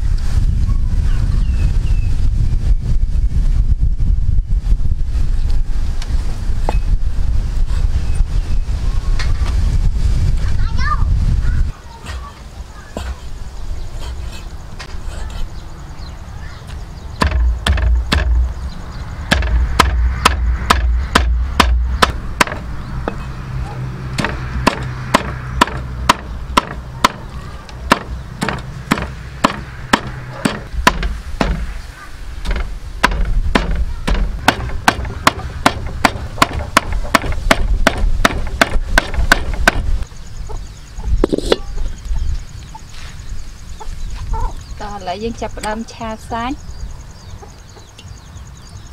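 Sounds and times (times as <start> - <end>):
low rumble: 17.0 - 39.0
cleaver chopping on wooden block: 17.2 - 18.5, 19.3 - 23.2, 24.2 - 27.3, 27.9 - 31.7, 32.4 - 39.9.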